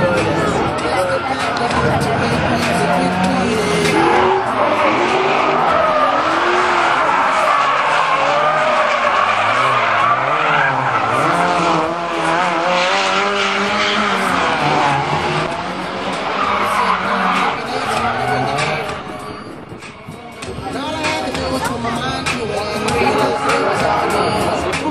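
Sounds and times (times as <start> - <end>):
car engines revving: 0.0 - 24.9
tyre screech: 3.4 - 21.2.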